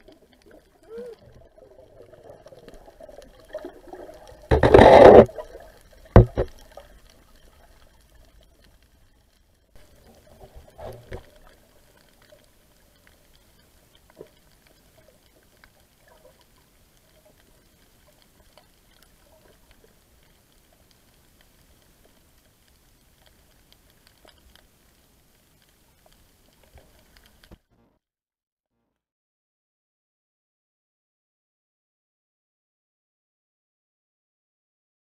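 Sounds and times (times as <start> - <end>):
muffled underwater water noise: 0.0 - 27.9
burst of water movement: 0.3 - 7.0
small clicks: 4.5 - 27.7.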